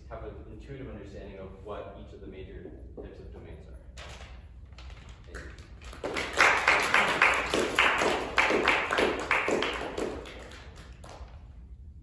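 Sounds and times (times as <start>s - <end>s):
small audience applauding: 4.9s - 11.6s.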